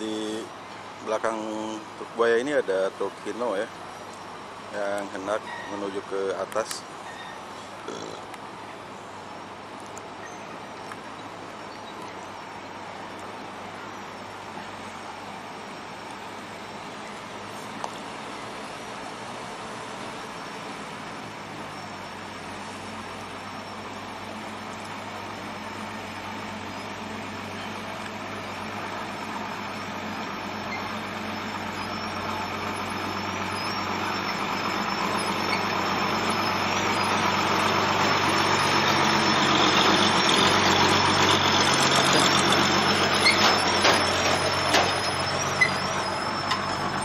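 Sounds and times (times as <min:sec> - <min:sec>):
diesel truck engine passing: 0:12.4 - 0:47.0.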